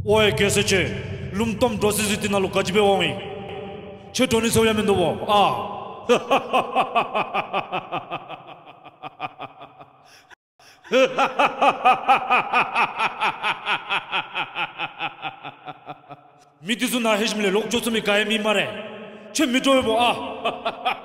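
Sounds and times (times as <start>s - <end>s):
creature cackling: 10.8s - 16.2s.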